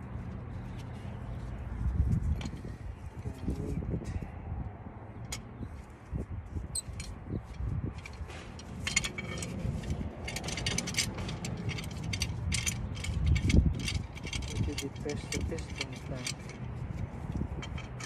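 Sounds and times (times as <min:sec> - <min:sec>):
metal clamp clinking and rattling: 0:06.8 - 0:18.0.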